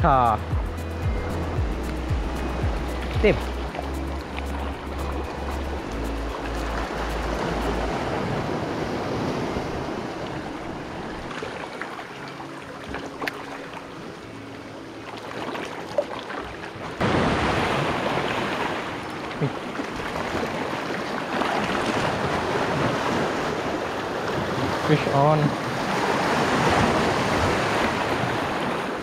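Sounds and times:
waves breaking over rocks: 6.4s - 29.0s.

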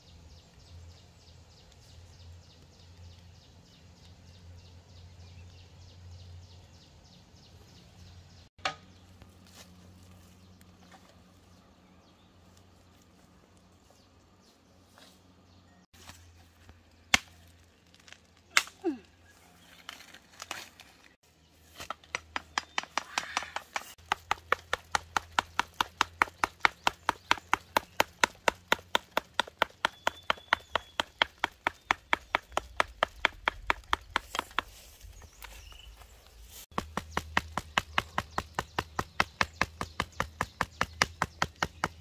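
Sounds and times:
rapid chopping strokes: 21.8s - 35.6s, 36.5s - 42.0s.

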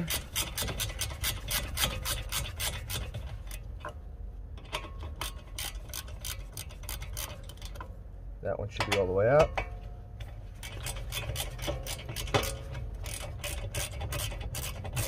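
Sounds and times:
ratchet wrench clicking: 0.0s - 3.7s, 4.7s - 7.9s, 10.2s - 15.0s.

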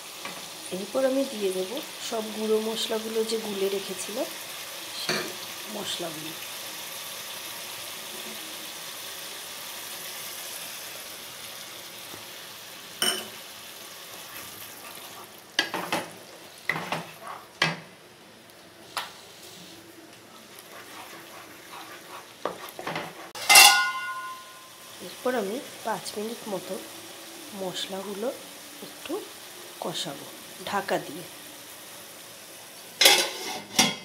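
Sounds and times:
spices sizzling in oil: 0.0s - 34.0s
spatula scraping a pan: 14.1s - 17.6s, 20.4s - 24.5s, 33.0s - 34.0s
loud metallic clang: 23.5s - 24.6s.

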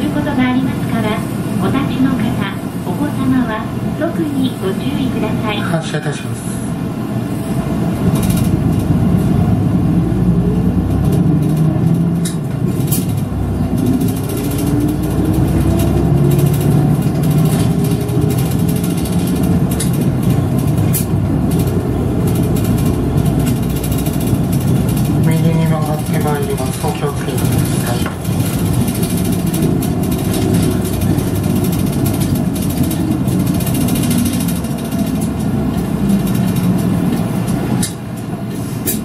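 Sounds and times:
bus engine rumble: 0.0s - 39.0s.

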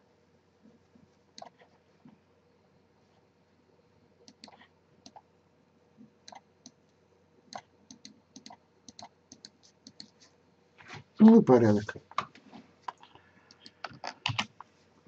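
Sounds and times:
computer mouse clicking: 1.4s - 1.7s, 4.2s - 5.3s, 6.2s - 6.8s, 7.5s - 10.2s, 12.9s - 14.7s.

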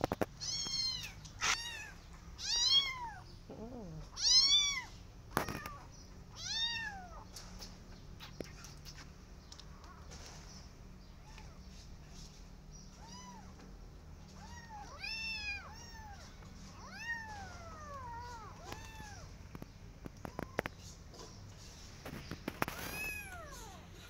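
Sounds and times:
kittens meowing: 0.3s - 7.4s, 12.9s - 13.6s, 14.2s - 19.4s, 22.6s - 24.0s.

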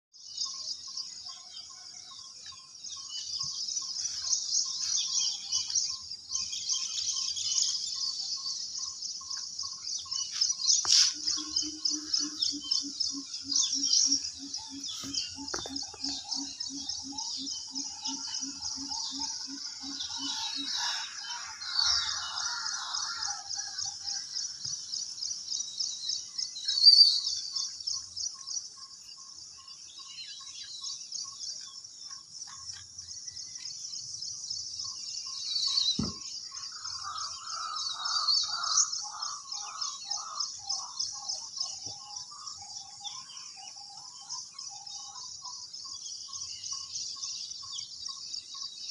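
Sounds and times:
small birds chirping: 0.2s - 48.9s
lower pulsing bird call: 10.8s - 24.3s.

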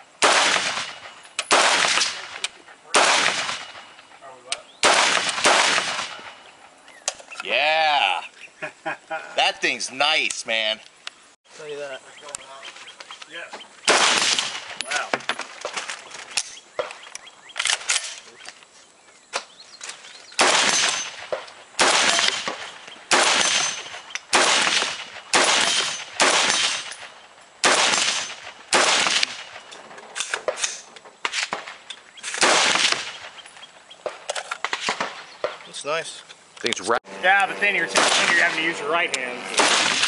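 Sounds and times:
rifle shots: 0.2s - 4.0s, 4.8s - 6.5s, 13.8s - 14.8s, 20.4s - 33.4s, 34.1s - 35.6s, 37.9s - 38.7s, 39.5s - 40.0s.

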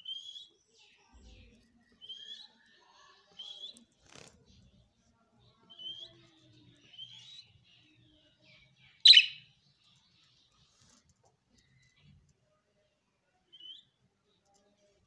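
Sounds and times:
budgerigar harsh squawk: 9.1s - 9.4s
budgerigars chirping: 9.1s - 9.4s.

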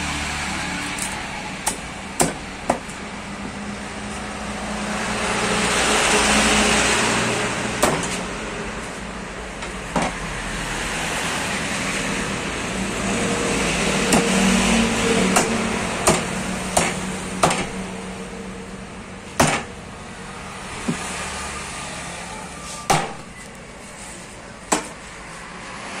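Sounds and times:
passing traffic engine noise: 0.0s - 26.0s
cleaver chopping on wooden block: 1.6s - 2.9s, 7.8s - 8.2s, 14.1s - 14.4s, 15.3s - 17.8s, 19.4s - 19.7s.

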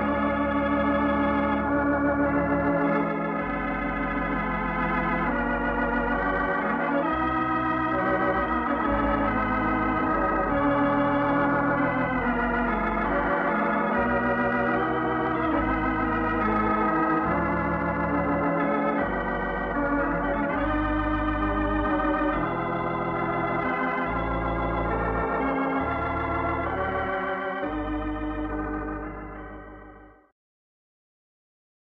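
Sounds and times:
organ music: 0.0s - 30.3s.

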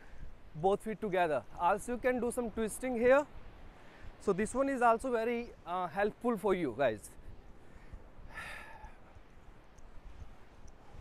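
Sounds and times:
wind: 0.0s - 11.0s
breathy exhale: 7.7s - 9.1s.

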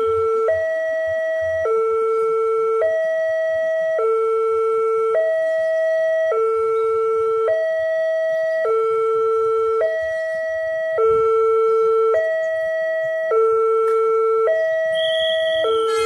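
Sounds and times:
level crossing two-tone alarm: 0.0s - 16.0s.

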